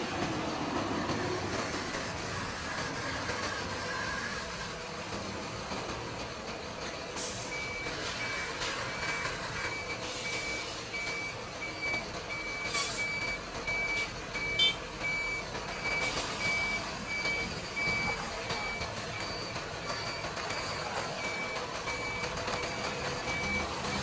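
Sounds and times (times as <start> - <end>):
truck reversing alarm beeping: 6.5 - 24.0.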